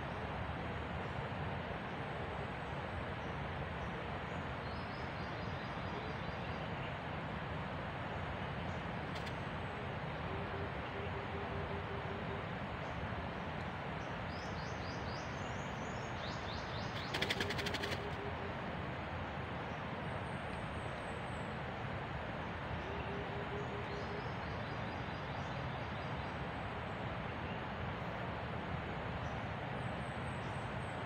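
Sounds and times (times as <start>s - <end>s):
forest hiss: 0.0s - 31.0s
fast rattle of clicks: 17.0s - 18.1s.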